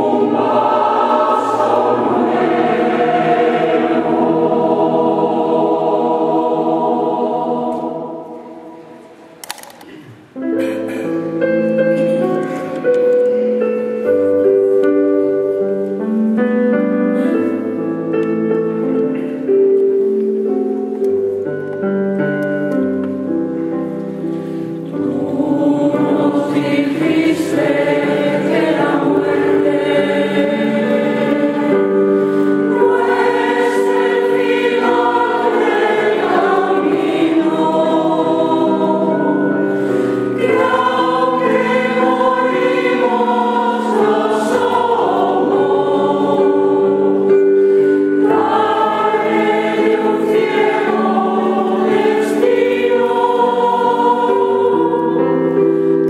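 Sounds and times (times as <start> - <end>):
choir singing in harmony: 0.0 - 9.4, 23.9 - 56.0.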